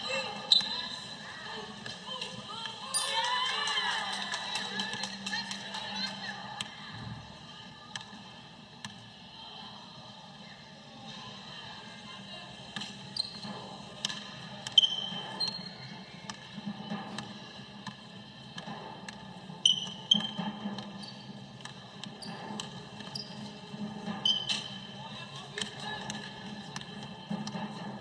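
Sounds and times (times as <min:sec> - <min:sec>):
sneaker squeaks: 0:00.1 - 0:01.0, 0:12.8 - 0:13.8, 0:14.6 - 0:16.4, 0:19.6 - 0:24.9.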